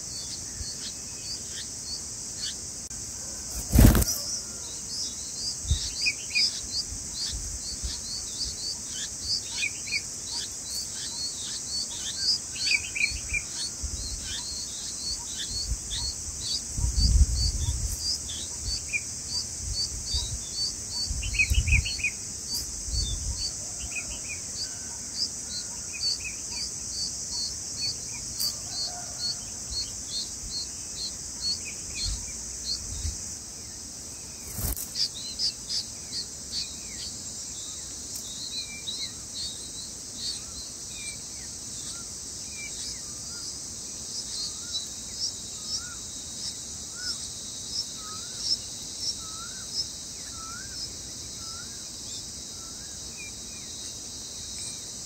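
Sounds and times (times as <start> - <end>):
high insect drone: 0.0 - 55.0
bird chirps: 3.4 - 33.2
regular short chirps: 34.4 - 35.8.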